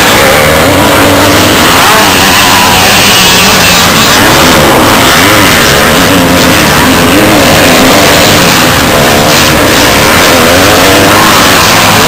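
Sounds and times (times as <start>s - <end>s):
motocross bike engines revving: 0.0s - 12.0s.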